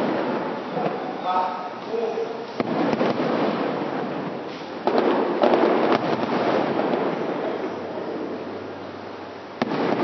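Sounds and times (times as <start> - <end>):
fireworks shells bursting: 2.4 - 7.9, 9.6 - 10.0.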